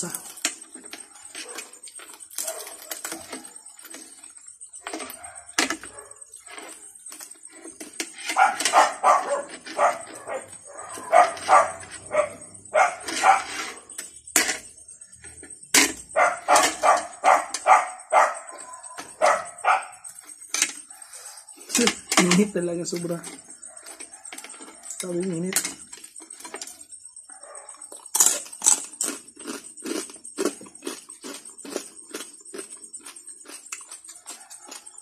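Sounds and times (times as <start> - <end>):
dog barking: 1.1 - 1.8, 2.4 - 3.6, 5.0 - 6.2, 8.3 - 13.9, 16.1 - 20.0, 27.3 - 27.8, 34.2 - 34.9.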